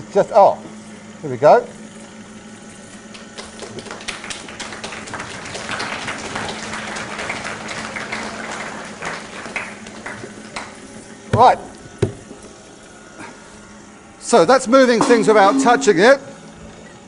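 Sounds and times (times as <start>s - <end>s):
motor humming: 0.0s - 17.0s
audience applause: 3.1s - 10.8s.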